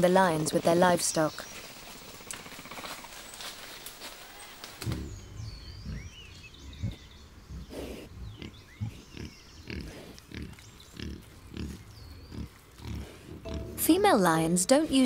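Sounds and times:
birds chirping and whistling: 4.4 - 15.0.

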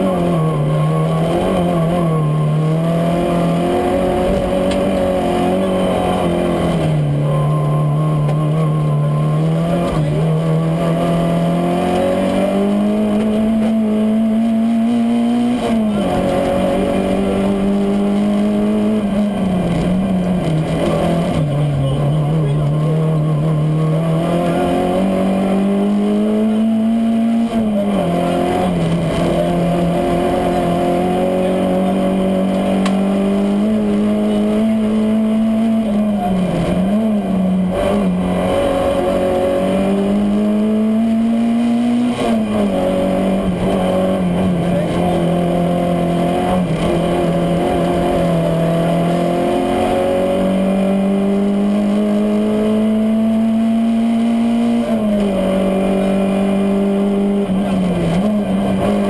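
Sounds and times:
car engine at high revs: 0.0 - 59.0.

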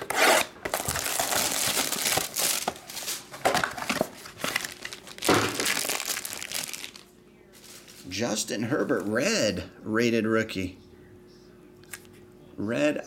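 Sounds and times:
plastic wrap crinkling and tearing: 0.0 - 8.1.

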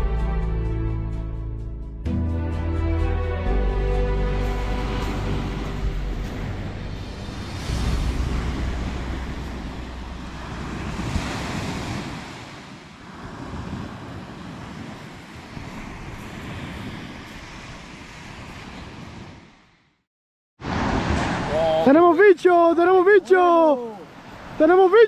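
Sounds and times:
wind rumbling on microphone: 4.4 - 20.0
small waves breaking: 4.5 - 19.8, 20.6 - 25.0.

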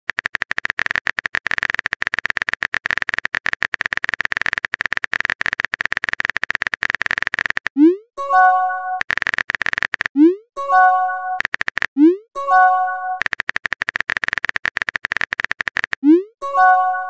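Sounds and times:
phone keyboard typing clicks: 0.1 - 17.0.

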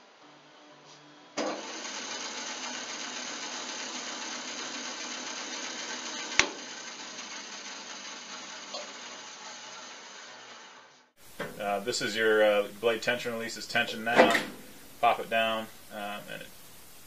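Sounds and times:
bandsaw running: 1.0 - 16.1
motor starting thump: 1.4 - 11.6.

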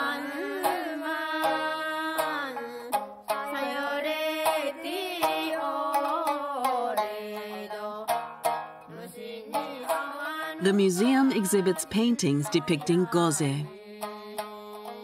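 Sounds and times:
woman singing wavering notes: 0.0 - 1.0, 10.6 - 13.8.

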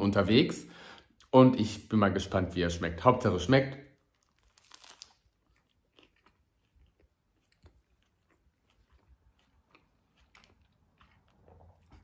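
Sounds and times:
crisp crunch of biting: 4.0 - 12.0
quiet chewing: 4.0 - 12.0.

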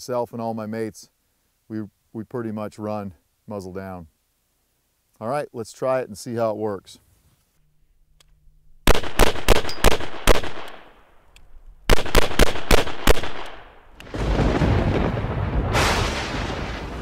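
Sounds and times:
rifle gunshots: 8.8 - 11.0, 11.9 - 14.2.

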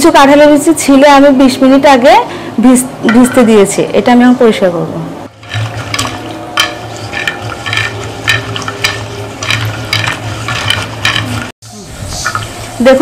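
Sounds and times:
wet scraping of seeds in bowl: 5.4 - 11.5.

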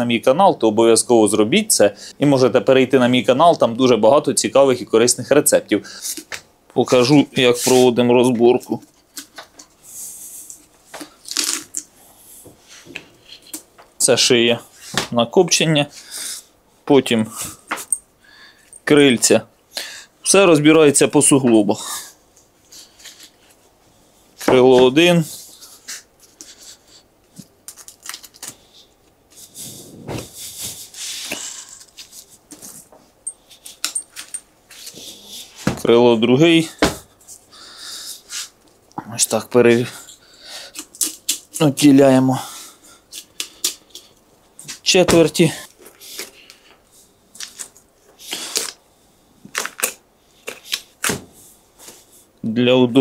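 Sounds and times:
raw turkey crackling and snapping: 10.9 - 11.9, 27.4 - 29.2, 40.6 - 41.6, 43.1 - 44.3, 49.4 - 51.2.

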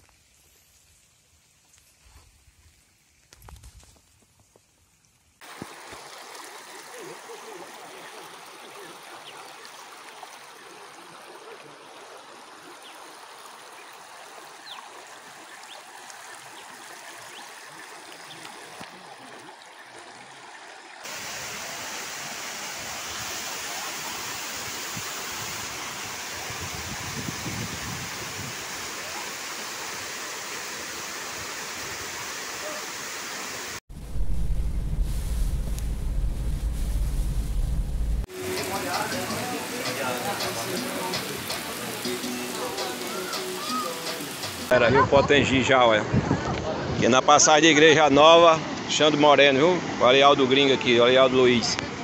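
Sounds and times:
floodwater rushing over road: 5.4 - 32.8, 34.1 - 44.8
water pouring over dam spillway: 5.4 - 33.7, 38.2 - 44.8
low rumble: 33.9 - 38.3.

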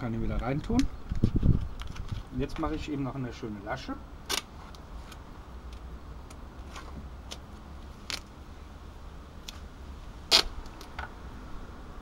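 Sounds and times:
duct tape clicks and crinkles: 4.2 - 8.4, 10.3 - 11.1.

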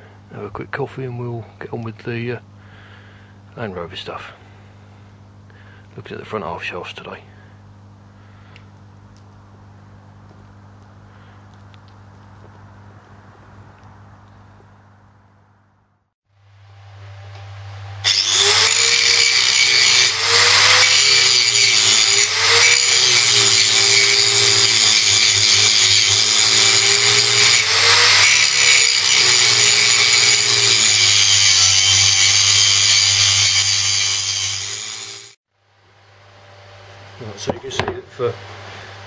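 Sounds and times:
angle grinder cutting metal: 18.0 - 35.4.

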